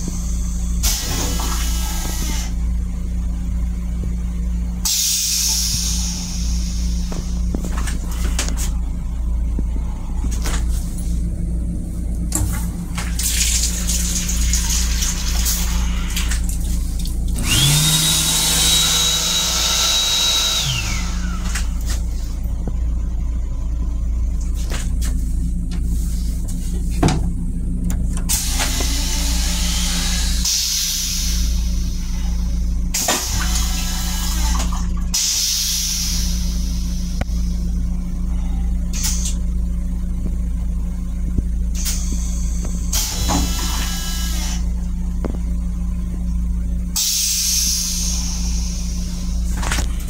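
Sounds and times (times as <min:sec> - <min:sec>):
steady low hum: 0:00.0 - 0:50.0
sink faucet running with whine: 0:13.0 - 0:21.6.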